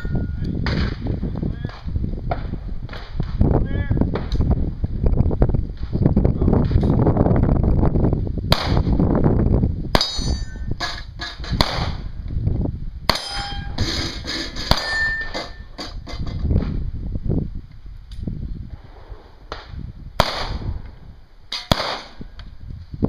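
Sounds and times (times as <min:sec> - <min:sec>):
ringing steel targets: 0:00.0 - 0:01.0, 0:10.0 - 0:11.7, 0:13.1 - 0:16.4, 0:21.5 - 0:22.3
submachine gun single shots: 0:21.6 - 0:22.2.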